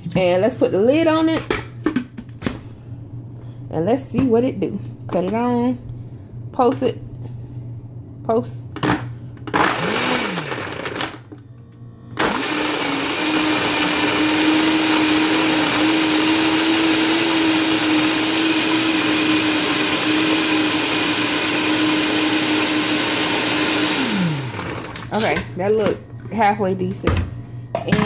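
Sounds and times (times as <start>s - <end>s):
blender running at high speed: 9.5s - 11.2s, 12.2s - 25.2s.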